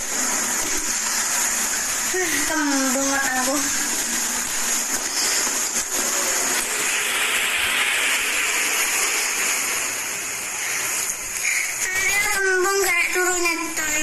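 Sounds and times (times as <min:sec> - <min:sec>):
loud rushing hiss: 0:00.0 - 0:11.9.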